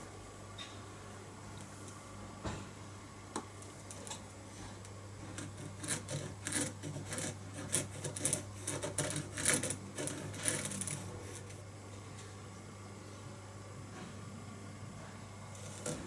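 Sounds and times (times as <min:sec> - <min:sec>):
pencil scratching on wood: 0:05.3 - 0:11.6, 0:15.6 - 0:16.0.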